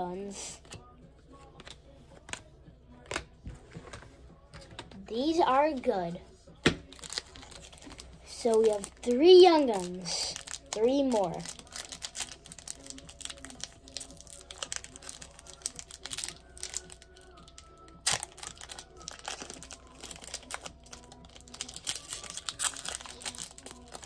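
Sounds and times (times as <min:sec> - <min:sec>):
foil wrapper crinkling and tearing: 0:06.8 - 0:24.0.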